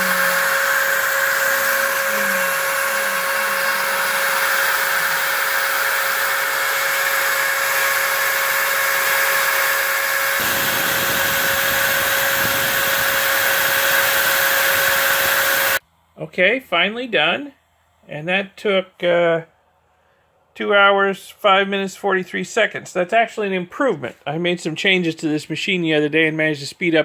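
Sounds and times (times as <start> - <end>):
router spindle whine: 0.0 - 15.8
vacuum rushing through hose: 0.0 - 15.8.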